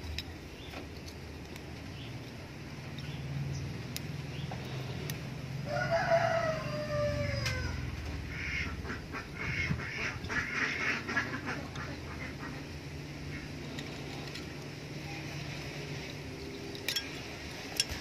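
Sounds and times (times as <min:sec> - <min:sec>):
rooster crowing: 0:05.6 - 0:08.0.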